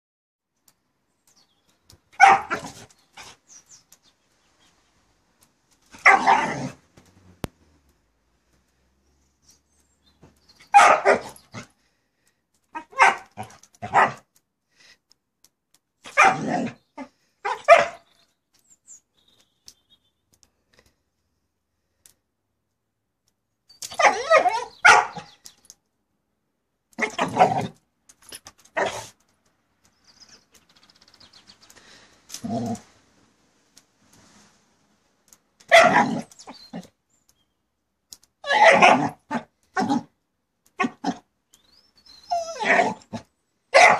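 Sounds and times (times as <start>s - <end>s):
dog barking: 2.2s - 2.7s, 6.0s - 6.5s, 10.7s - 11.4s, 12.8s - 14.2s, 16.1s - 16.5s, 17.4s - 18.0s, 24.0s - 25.3s, 35.7s - 36.1s, 38.5s - 39.4s.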